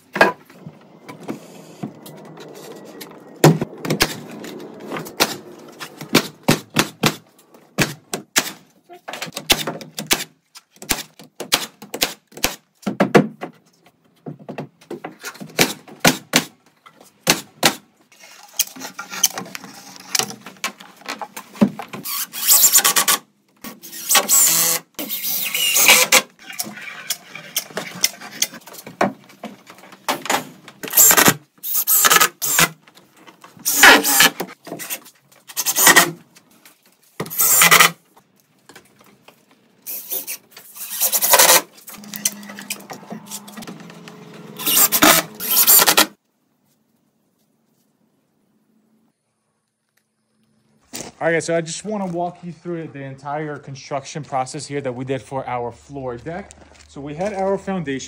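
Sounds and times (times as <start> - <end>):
impact driver driving screws: 44.6 - 46.1.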